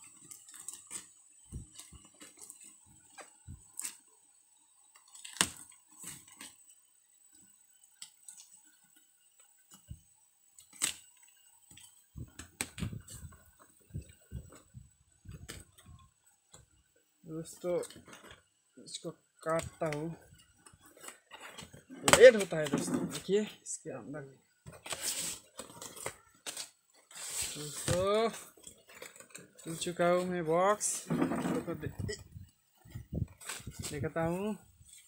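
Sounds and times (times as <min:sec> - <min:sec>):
packing tape tearing: 0:05.0 - 0:06.5, 0:10.6 - 0:11.2, 0:24.8 - 0:29.8
cardboard box rustling open: 0:24.7 - 0:30.4.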